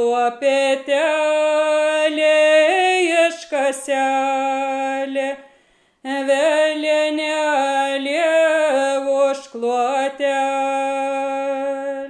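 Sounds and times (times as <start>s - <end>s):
woman singing unaccompanied: 0.0s - 12.0s
singer's breath: 5.4s - 6.1s.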